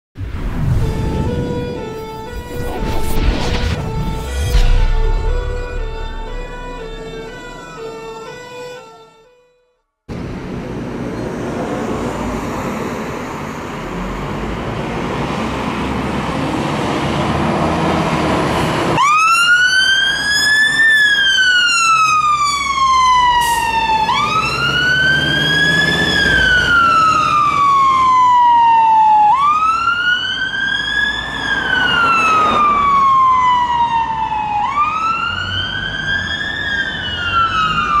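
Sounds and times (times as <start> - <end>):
road noise: 0.2 - 9.5, 10.1 - 38.0
wail siren: 0.6 - 9.4, 19.0 - 38.0
fire engine diesel engine: 10.1 - 29.4.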